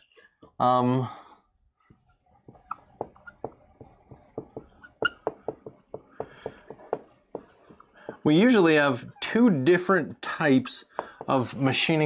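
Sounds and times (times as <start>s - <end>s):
marker squeaking on whiteboard: 1.9s - 9.4s.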